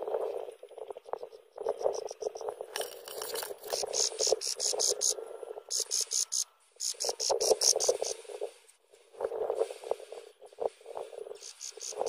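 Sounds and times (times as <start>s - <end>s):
nestlings peeping: 3.7s - 8.2s, 11.4s - 12.0s.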